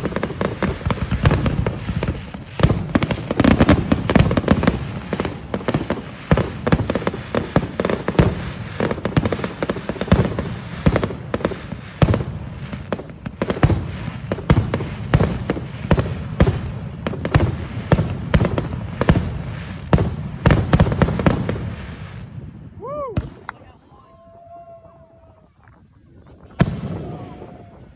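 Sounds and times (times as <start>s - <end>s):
fireworks bursting and banging: 0.0s - 23.8s, 26.2s - 27.9s.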